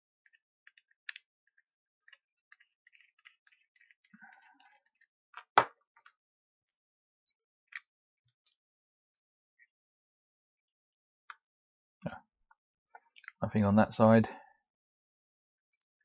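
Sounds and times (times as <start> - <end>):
screwdriver clicks and scratches: 0.2 - 5.6.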